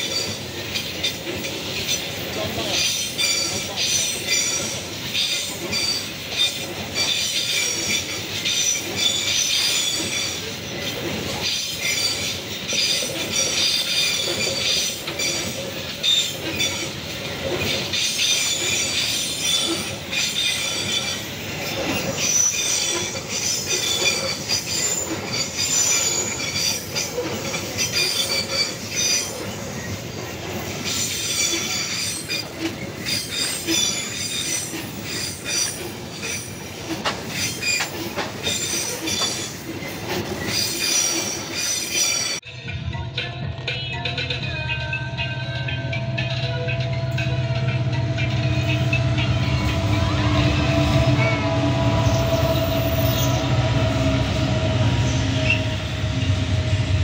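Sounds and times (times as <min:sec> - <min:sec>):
train wheels rumbling on rails: 0:00.0 - 0:57.0
wheel squeal: 0:02.8 - 0:30.0, 0:30.7 - 0:42.4, 0:48.5 - 0:56.9.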